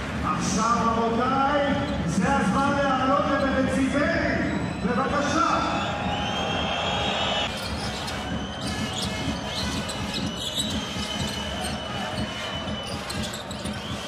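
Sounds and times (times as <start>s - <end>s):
arena crowd noise: 0.0s - 14.0s
basketball dribbling on hardwood: 7.6s - 14.0s.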